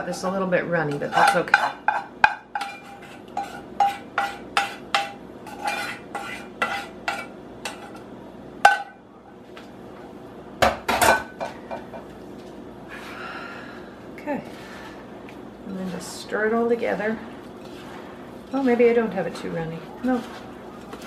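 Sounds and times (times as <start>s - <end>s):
spoon scraping a ringing saucepan: 0.9s - 8.0s.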